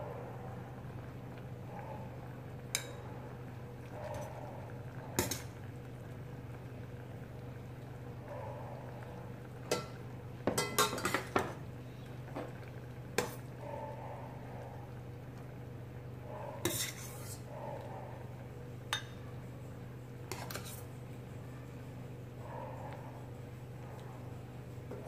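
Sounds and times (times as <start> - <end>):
steady low hum: 0.0 - 25.0
metal spoon clinking on pot: 9.7 - 11.4.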